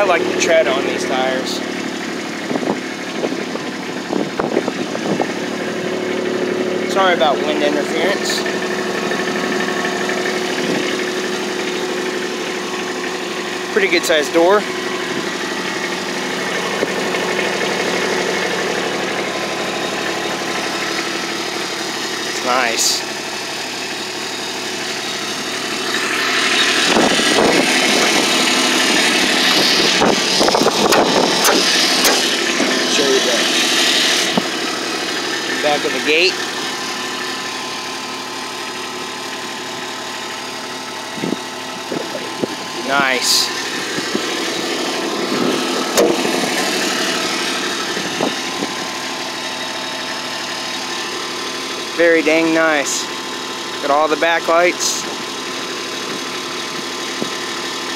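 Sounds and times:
diesel engine idling: 0:00.0 - 0:57.9.

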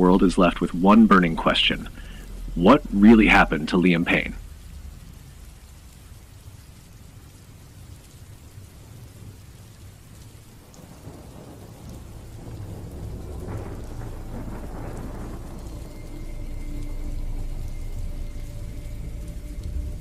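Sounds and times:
steady rain: 0:00.0 - 0:20.0
rolling thunder: 0:10.6 - 0:20.0.

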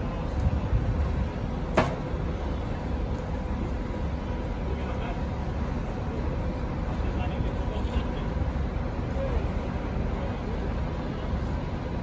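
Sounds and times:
diesel engine rumbling: 0:00.0 - 0:12.0
sharp knock: 0:01.8 - 0:02.0.

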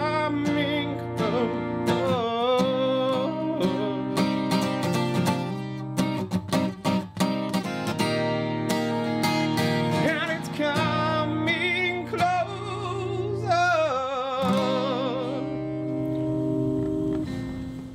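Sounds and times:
man singing long notes: 0:00.0 - 0:04.2, 0:10.0 - 0:15.9
acoustic guitar strumming: 0:00.0 - 0:17.9.

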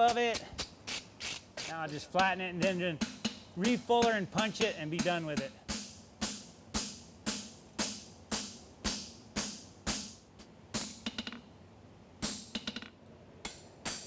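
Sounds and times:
hammer striking metal: 0:02.2 - 0:11.4.

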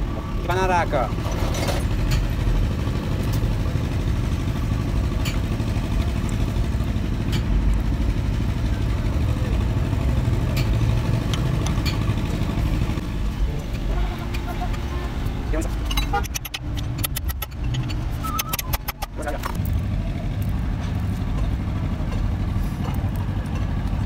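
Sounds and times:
engine rumbling: 0:00.0 - 0:24.0
sharp metallic clicks: 0:15.9 - 0:19.6.

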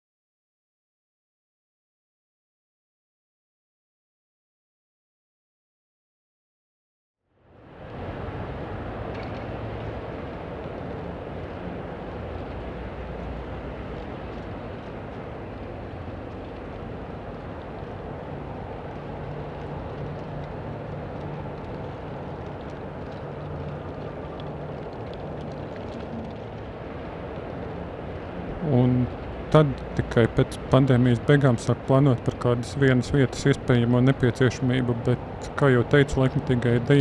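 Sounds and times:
low engine hum: 0:07.6 - 0:37.0
street traffic rumble: 0:07.7 - 0:37.0.

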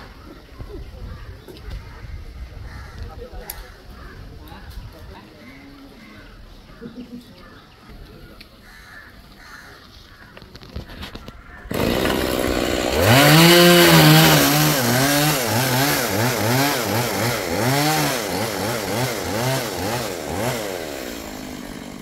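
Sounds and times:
chainsaw cutting wood: 0:11.7 - 0:22.0.

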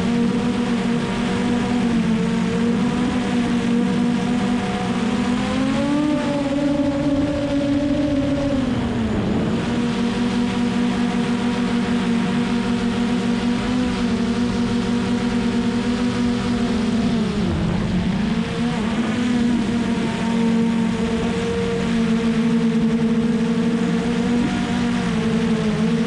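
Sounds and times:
drone propellers buzzing: 0:00.0 - 0:26.0.

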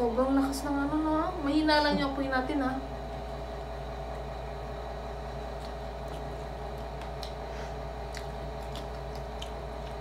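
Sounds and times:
steady background hum: 0:00.0 - 0:10.0
crispy pork crackling in hands: 0:05.2 - 0:10.0.

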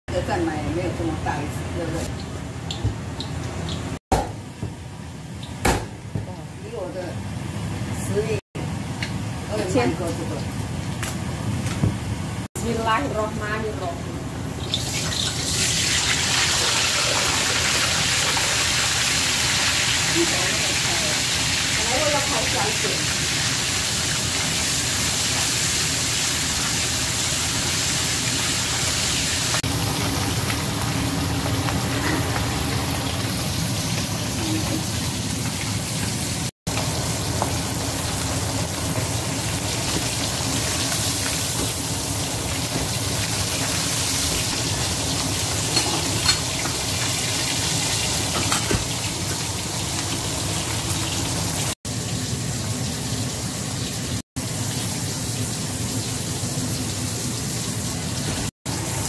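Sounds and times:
fish sizzling in hot oil: 0:14.6 - 0:59.0.

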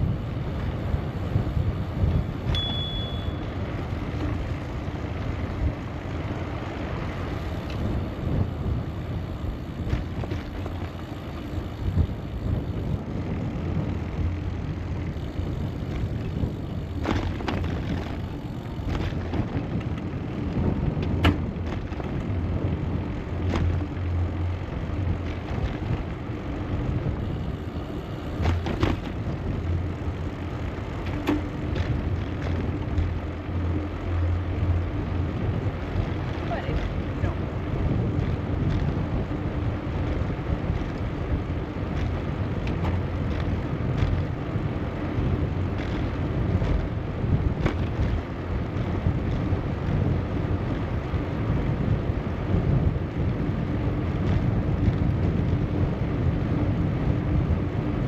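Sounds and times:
bicycle tyres rolling on trail: 0:00.0 - 0:58.0
sharp clicks and rattles: 0:13.7 - 0:22.6, 0:28.3 - 0:39.0.

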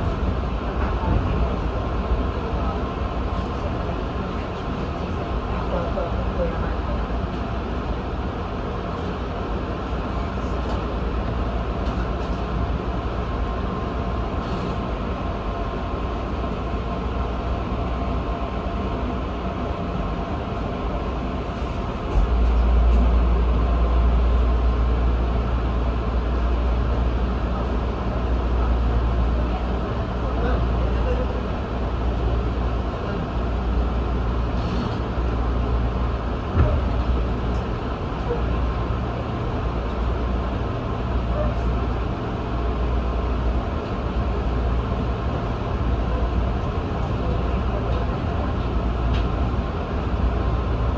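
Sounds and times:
train wheels rumbling on rail: 0:00.0 - 0:50.9
thump: 0:36.5 - 0:36.8.

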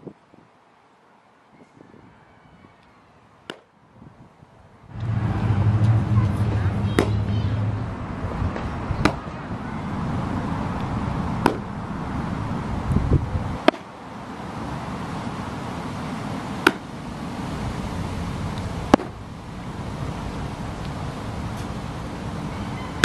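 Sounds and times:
background noise: 0:00.0 - 0:23.0
baseballs popping into mitt: 0:03.4 - 0:03.7, 0:08.6 - 0:09.2, 0:11.4 - 0:11.7, 0:13.6 - 0:13.9, 0:16.6 - 0:16.9, 0:18.9 - 0:19.2.

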